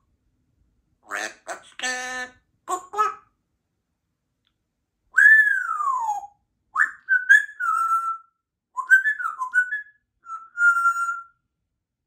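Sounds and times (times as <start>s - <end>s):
parrot whistling: 5.2s - 11.4s.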